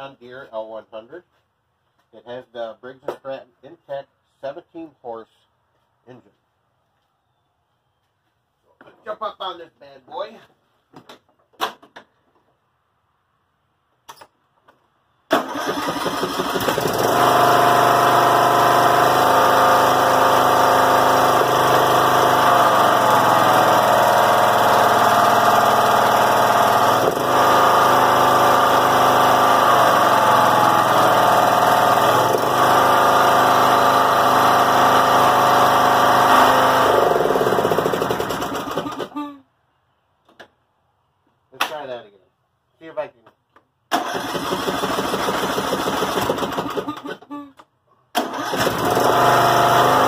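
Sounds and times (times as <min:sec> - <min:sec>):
riding mower engine running fast: 0:15.4 - 0:39.1, 0:44.0 - 0:47.0, 0:48.2 - 0:50.0.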